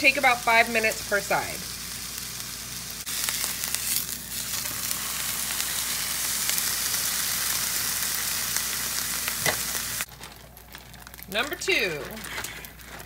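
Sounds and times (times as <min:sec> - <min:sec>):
meat sizzling in a frying pan: 0:00.0 - 0:10.1.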